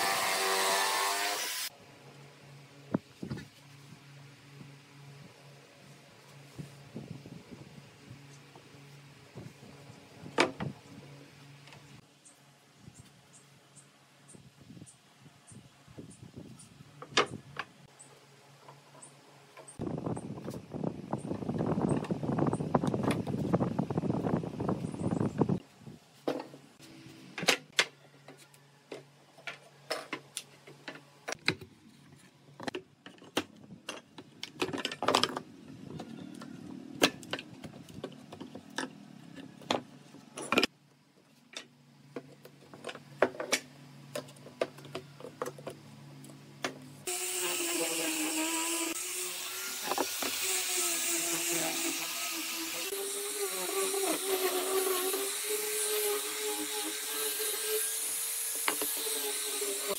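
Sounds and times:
angle grinder sanding wood: 0.0 - 1.7, 47.0 - 59.9.

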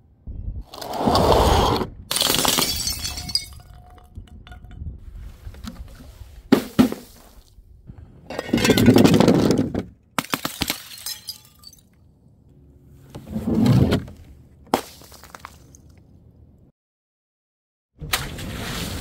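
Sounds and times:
glass shattering: 2.1 - 4.6, 10.3 - 12.0
glass shards clinking: 2.1 - 4.7, 10.8 - 11.9.

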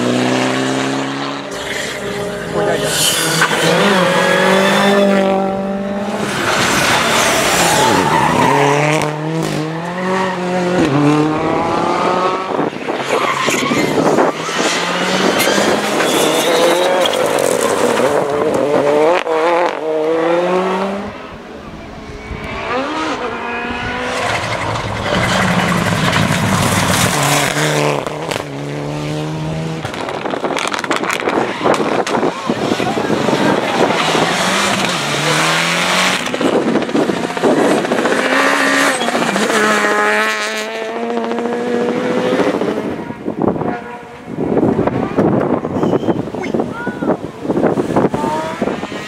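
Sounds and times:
rally car engines revving: 0.0 - 49.0.

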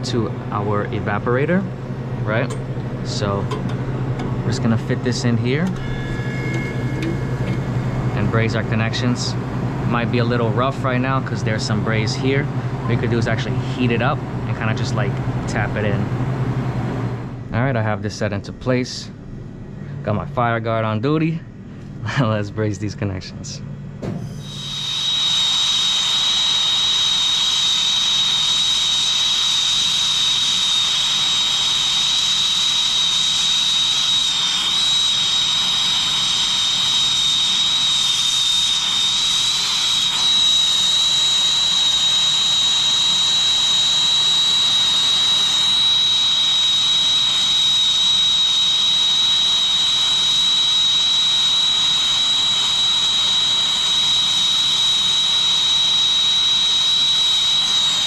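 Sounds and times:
steady high whistle: 4.5 - 15.0, 24.2 - 58.0
torch flame hissing: 24.3 - 58.0.

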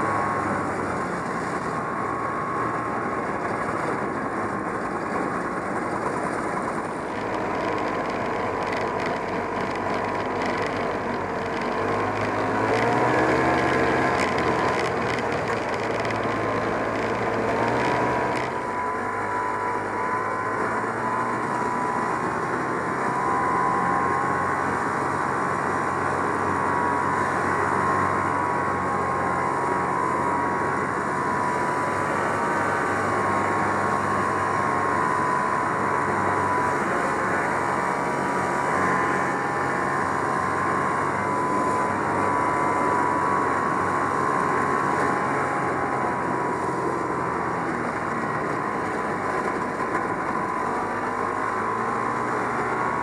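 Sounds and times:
snowmobile two-stroke engine running: 0.0 - 53.0.

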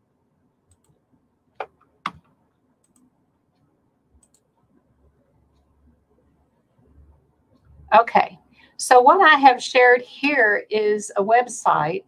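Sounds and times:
computer mouse clicking: 0.7 - 1.0, 1.6 - 6.0.

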